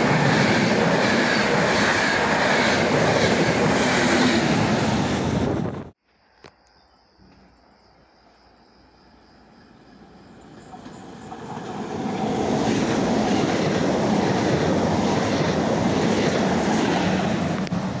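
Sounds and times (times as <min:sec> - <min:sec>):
train wheels on rails: 0:00.0 - 0:05.8, 0:09.7 - 0:18.0.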